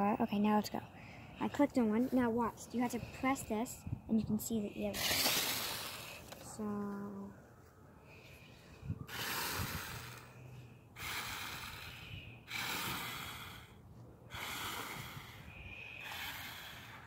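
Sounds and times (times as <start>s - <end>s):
person breathing heavily: 0.9s - 2.2s, 8.0s - 17.0s.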